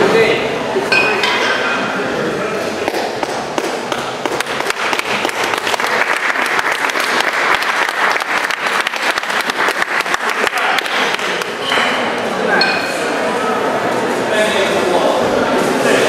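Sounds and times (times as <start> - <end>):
audience applauding: 3.6 - 11.7.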